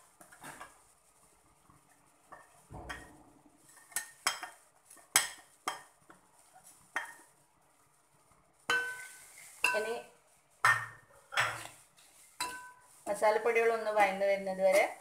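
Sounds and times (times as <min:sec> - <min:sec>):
spoon clinking on cookware: 0:08.7 - 0:10.0, 0:12.4 - 0:12.9.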